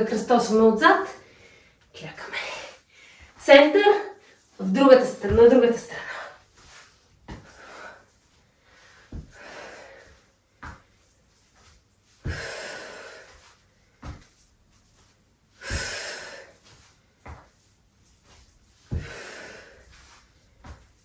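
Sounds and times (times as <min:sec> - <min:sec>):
foot thudding on exercise mat: 0:05.1 - 0:08.2, 0:08.9 - 0:21.0.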